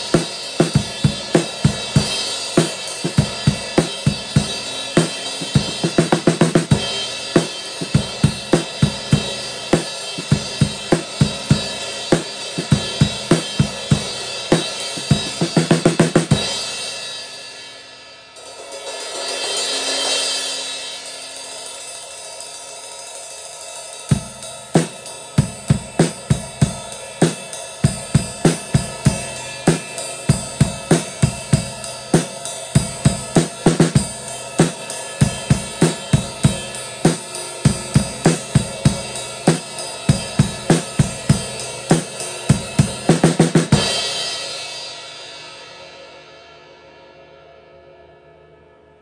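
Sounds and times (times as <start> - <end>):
drum kit steady beat: 0.0 - 45.9
crash cymbal ringing: 16.3 - 43.1.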